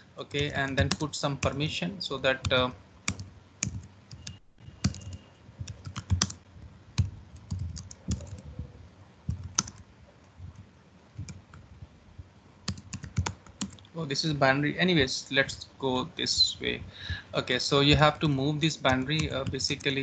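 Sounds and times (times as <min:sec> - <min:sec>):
typing on computer keyboard: 0:00.3 - 0:01.6, 0:02.4 - 0:06.4, 0:07.0 - 0:08.5, 0:09.3 - 0:09.8, 0:12.7 - 0:13.9, 0:18.9 - 0:20.0.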